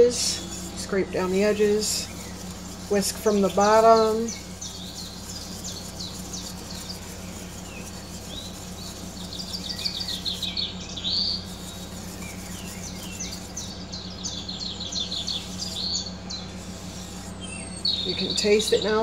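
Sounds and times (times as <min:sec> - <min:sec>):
whisk scraping a metal saucepan: 0:00.0 - 0:10.5, 0:15.2 - 0:17.4
steady low hum: 0:00.0 - 0:19.0.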